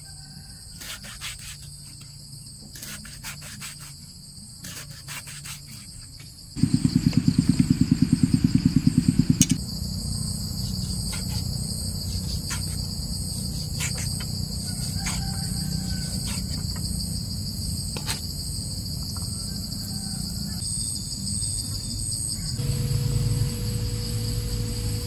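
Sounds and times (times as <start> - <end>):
insect drone: 0.0 - 25.0
low rapid throbbing: 6.6 - 9.6, 22.6 - 25.0
knife chopping on wooden block: 13.6 - 15.5.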